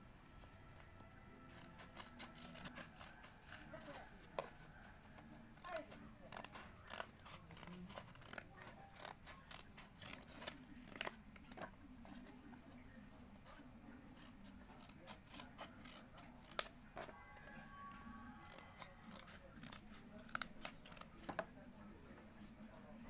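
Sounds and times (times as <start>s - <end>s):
scissors snipping cardboard: 0.5s - 21.6s.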